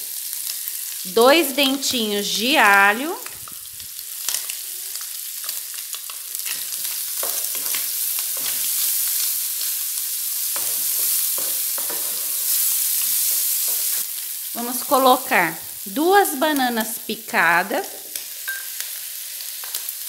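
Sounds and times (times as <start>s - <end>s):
food sizzling in oil: 0.0s - 20.0s
wooden spoon scraping a pan: 6.4s - 14.0s.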